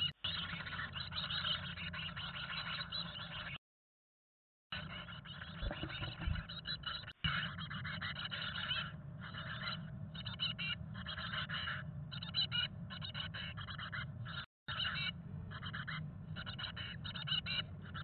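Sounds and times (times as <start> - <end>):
nestlings chattering calls: 0.2 - 3.5, 4.8 - 18.0
steady low hum: 4.8 - 18.0.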